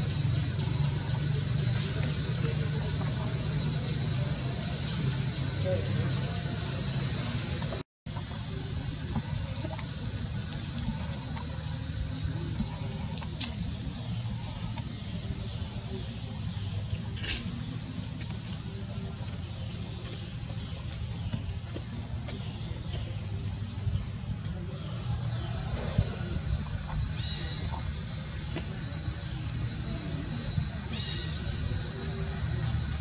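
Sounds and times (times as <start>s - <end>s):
insects droning: 0.0s - 33.0s.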